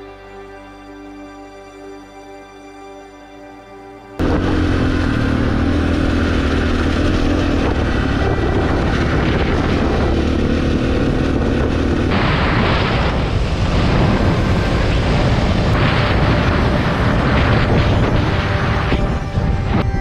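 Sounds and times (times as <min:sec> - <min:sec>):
motorcycle engine under throttle: 0:04.2 - 0:19.7
wind buffeting microphone: 0:04.2 - 0:20.0.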